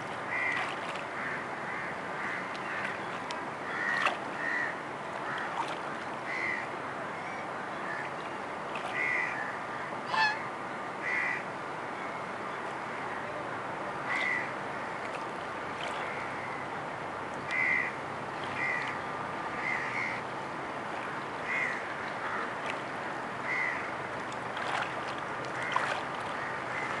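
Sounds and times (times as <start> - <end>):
duck splashing water: 0.0 - 6.5, 15.0 - 16.3, 17.4 - 20.1, 20.8 - 27.0
steady background hiss: 0.0 - 27.0.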